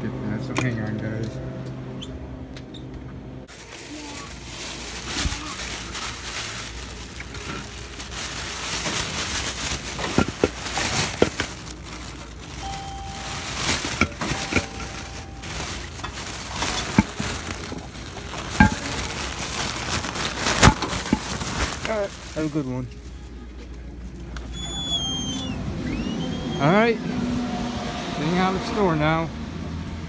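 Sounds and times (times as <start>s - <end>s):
plastic bag rustling: 3.5s - 23.6s
short beeps: 12.6s - 15.4s
handling clicks and knocks: 12.6s - 19.1s.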